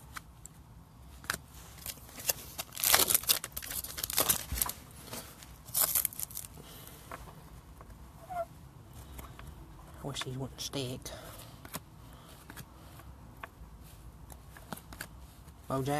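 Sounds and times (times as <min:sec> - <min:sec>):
card wrapper crinkling and tearing: 0:01.1 - 0:06.6.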